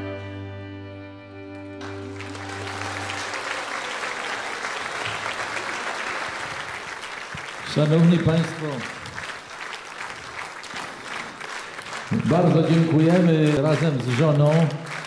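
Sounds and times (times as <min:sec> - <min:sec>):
orchestra chord: 0:00.0 - 0:03.6
audience applause: 0:01.7 - 0:15.0.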